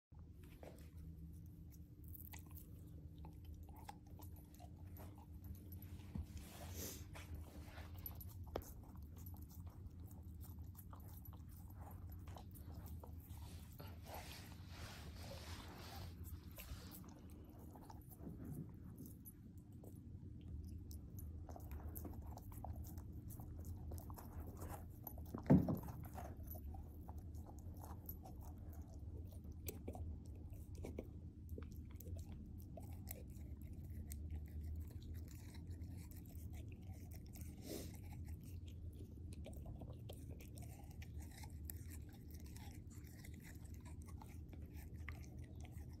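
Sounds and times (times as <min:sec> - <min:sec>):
low steady hum: 0:00.0 - 0:46.0
puppy chewing and crunching: 0:00.2 - 0:46.0
thump: 0:25.4 - 0:26.0.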